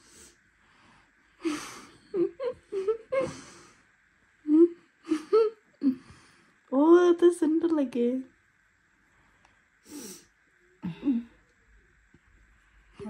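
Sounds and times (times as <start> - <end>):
person murmuring breathily: 10.8 - 11.4.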